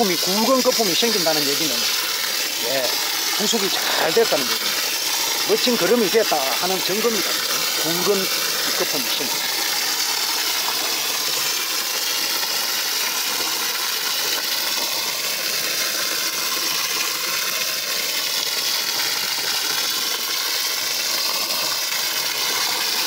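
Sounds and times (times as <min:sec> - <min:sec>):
hose water splashing into tub: 0:00.0 - 0:23.0.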